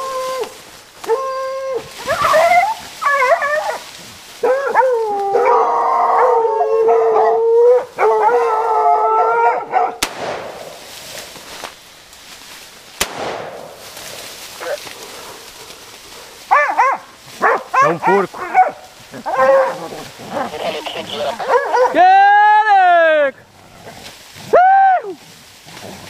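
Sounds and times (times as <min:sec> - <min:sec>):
dogs howling and baying: 0:00.0 - 0:10.0, 0:14.6 - 0:22.0
dogs yelping: 0:01.0 - 0:10.0, 0:15.6 - 0:22.0.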